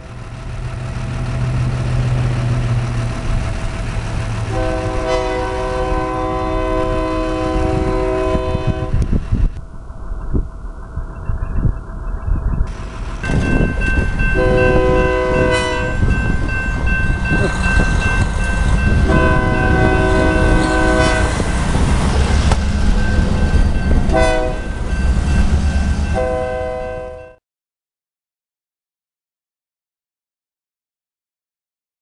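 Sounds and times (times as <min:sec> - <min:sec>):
low diesel rumble: 0:00.0 - 0:27.0
locomotive air horn: 0:04.4 - 0:09.2, 0:14.4 - 0:16.2, 0:19.0 - 0:21.5, 0:24.1 - 0:24.7, 0:26.1 - 0:27.4
crossing signal bell ringing: 0:11.1 - 0:21.7, 0:22.6 - 0:27.4.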